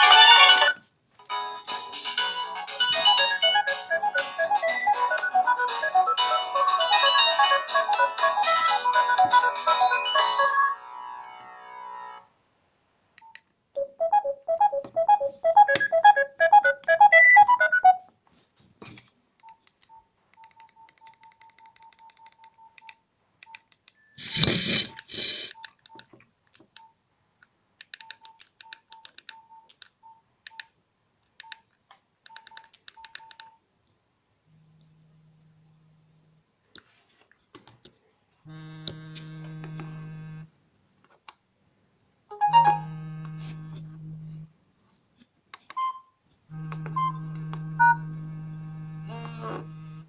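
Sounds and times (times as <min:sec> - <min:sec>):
polyphonic phone ringtone: 0:00.0 - 0:00.8, 0:13.8 - 0:18.0, 0:42.3 - 0:43.2
repeating melodic ringtone: 0:00.0 - 0:00.8, 0:02.1 - 0:11.0, 0:13.8 - 0:18.0, 0:42.3 - 0:42.9
keypad beeps: 0:13.2 - 0:18.0, 0:19.4 - 0:26.1, 0:28.0 - 0:30.7, 0:32.3 - 0:33.6.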